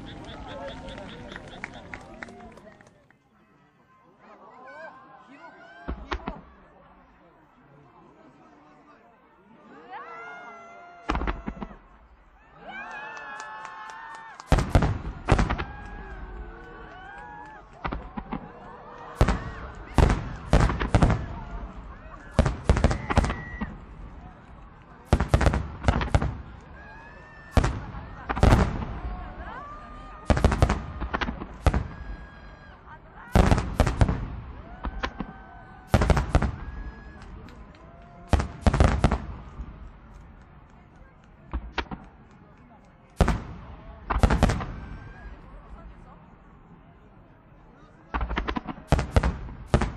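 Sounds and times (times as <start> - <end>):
whistling firework shells: 0.0 - 1.9, 22.3 - 23.8
loud firework bursts: 14.4 - 16.8, 17.6 - 37.4, 38.2 - 40.4, 43.1 - 45.4, 48.2 - 49.9.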